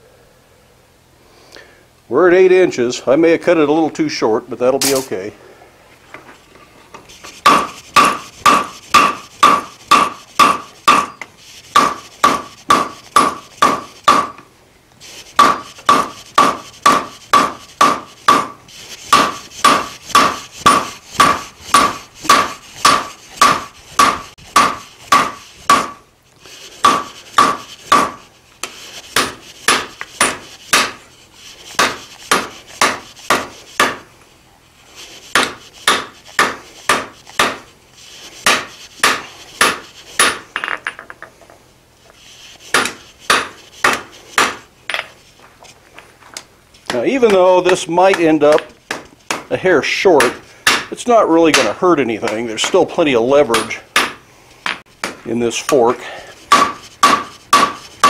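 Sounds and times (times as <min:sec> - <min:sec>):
hammer striking steel on anvil: 0:04.8 - 0:05.2, 0:07.4 - 0:14.4, 0:15.4 - 0:26.0, 0:26.8 - 0:28.2, 0:29.2 - 0:31.0, 0:31.8 - 0:34.0, 0:35.4 - 0:37.7, 0:38.4 - 0:41.2, 0:42.7 - 0:45.1, 0:50.2 - 0:50.9, 0:51.5 - 0:52.8, 0:56.5 - 0:57.8.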